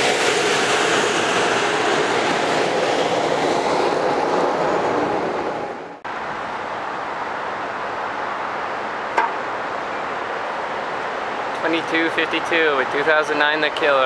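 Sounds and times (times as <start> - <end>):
train rolling past: 0.0 - 6.0
train wheels on rails: 0.0 - 6.0
station background noise: 2.2 - 14.0.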